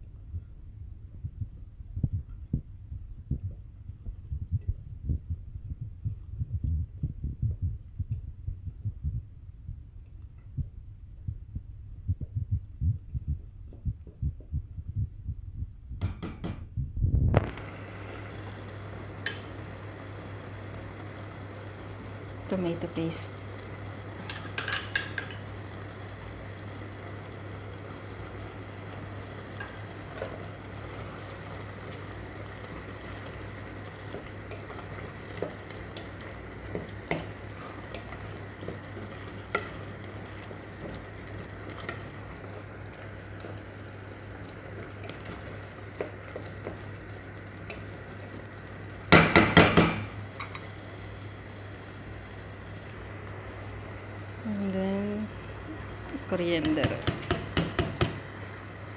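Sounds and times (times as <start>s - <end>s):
steady low hum: 0.0s - 58.9s
faint sizzle: 17.2s - 58.9s
spoon stirring sauce in pot: 31.8s - 47.0s
loud knocks against pot: 49.1s - 50.1s.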